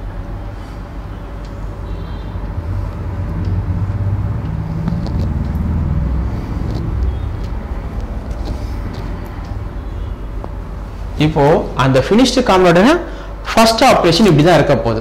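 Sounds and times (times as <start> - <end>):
low rumble: 2.3 - 11.8
marker squeaking on whiteboard: 4.8 - 10.6.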